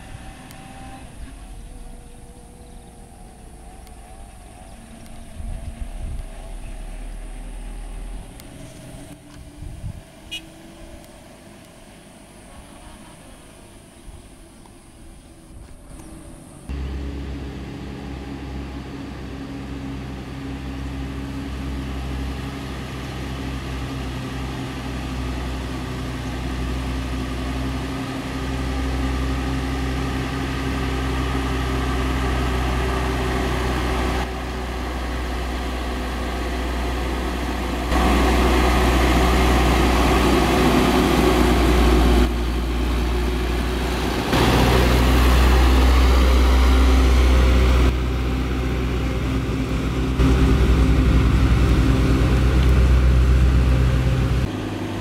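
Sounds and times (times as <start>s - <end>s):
diesel truck engine pulling uphill: 0.0s - 55.0s.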